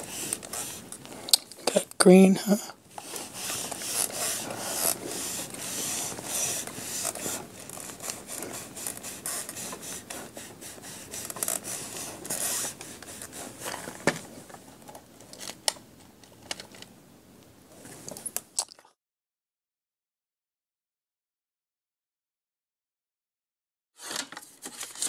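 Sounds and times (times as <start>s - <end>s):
scratchy rubbing on plastic lid: 0.0s - 0.9s, 3.0s - 13.9s.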